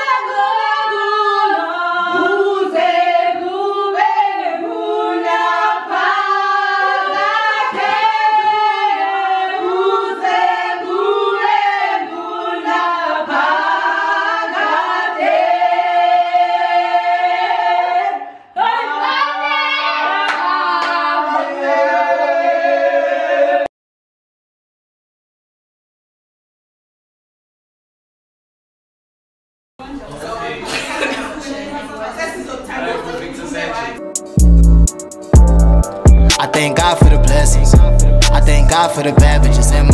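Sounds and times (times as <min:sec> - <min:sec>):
women singing worship song: 0:00.0 - 0:23.7
hand clapping: 0:20.3 - 0:21.0.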